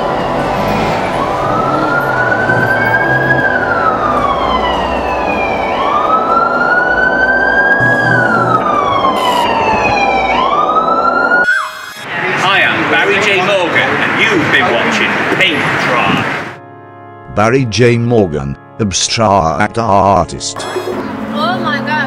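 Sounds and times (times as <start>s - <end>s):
wailing siren: 0.0s - 12.7s.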